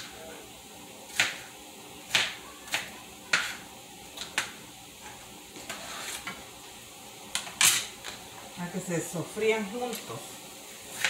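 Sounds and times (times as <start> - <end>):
food sizzling in a pan: 0.0 - 11.0
knife chopping on cutting board: 2.1 - 3.6
onion scraped into pan clatter: 5.6 - 6.4.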